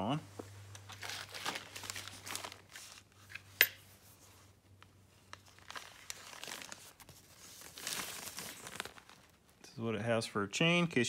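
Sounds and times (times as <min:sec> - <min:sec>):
plastic packaging crinkling: 0:00.8 - 0:03.3, 0:05.2 - 0:09.6.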